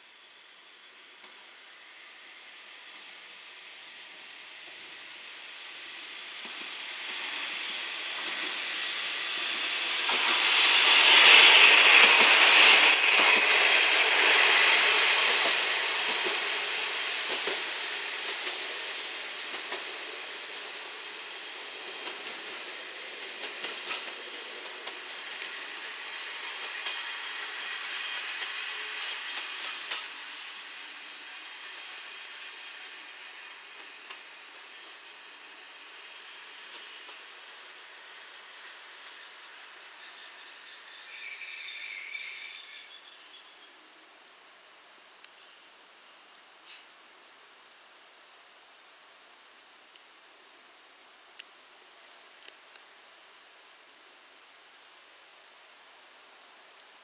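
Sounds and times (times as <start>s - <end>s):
train rumbling past: 0.2s - 44.2s.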